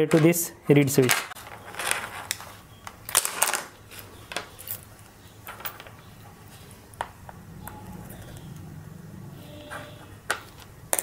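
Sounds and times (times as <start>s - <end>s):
small parts handled on tabletop: 1.0s - 7.4s.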